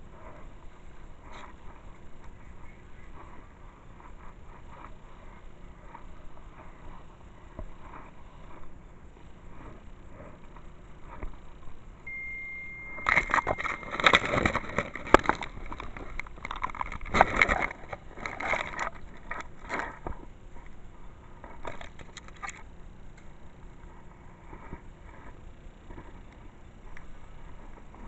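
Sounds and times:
grass rustling against microphone: 0.0 - 28.0
steady high tone: 12.0 - 15.0.

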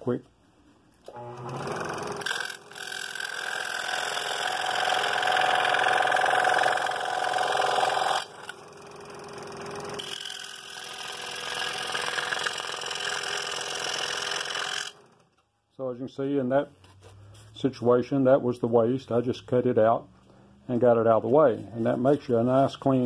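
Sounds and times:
scroll saw running: 1.1 - 15.2
saw blade cutting wood: 1.5 - 8.6, 9.6 - 15.0.

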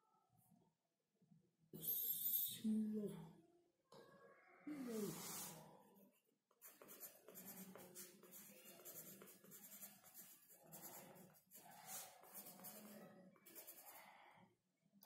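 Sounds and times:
pencil scratching on paper: 5.0 - 5.6, 6.6 - 14.1.

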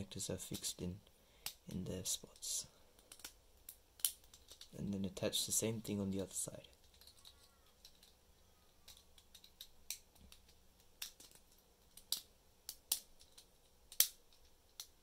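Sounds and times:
plastic parts clicking: 3.0 - 3.4, 4.0 - 4.7, 6.7 - 8.2, 8.8 - 14.9.

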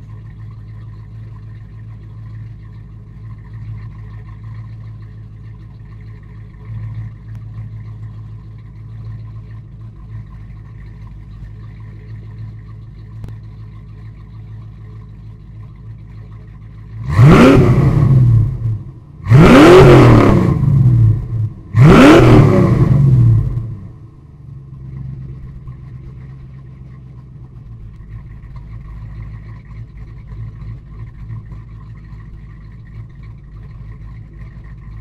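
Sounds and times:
car engine idling: 0.0 - 35.0
car engine revving: 17.0 - 24.1.

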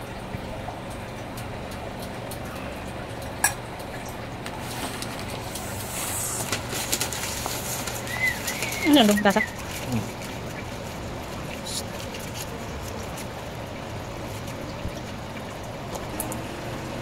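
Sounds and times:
steady low hum: 0.0 - 17.0
paper crinkling and rustling: 4.5 - 13.4.

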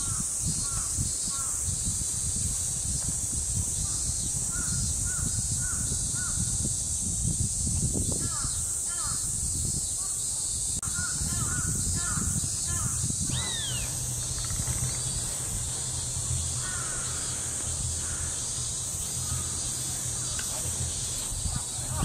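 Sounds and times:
crows cawing: 10.9 - 14.5, 15.9 - 20.3.

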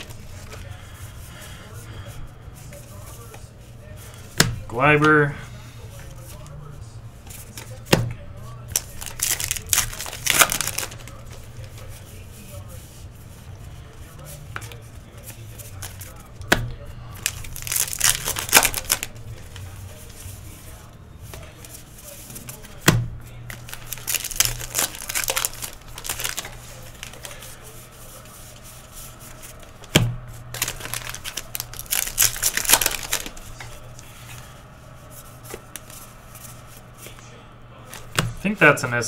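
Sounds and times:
wrappers tearing and crinkling: 0.0 - 1.5, 8.4 - 12.5, 13.8 - 34.5
steady low hum: 0.0 - 39.0.

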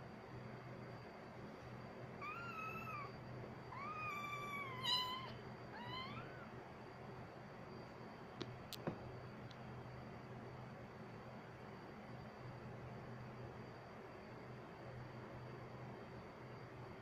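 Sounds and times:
kitten mewing: 2.2 - 6.6.

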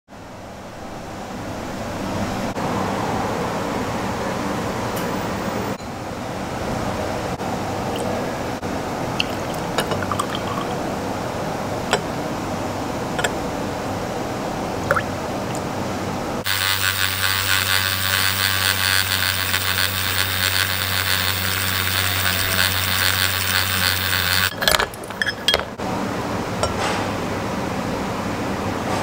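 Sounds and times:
clinks against glass: 9.2 - 10.8, 24.5 - 25.8, 26.6 - 26.8
coffee pouring into a glass: 9.2 - 10.8
milk pouring into a glass: 9.2 - 10.8
milk frother whirring: 16.4 - 25.5.

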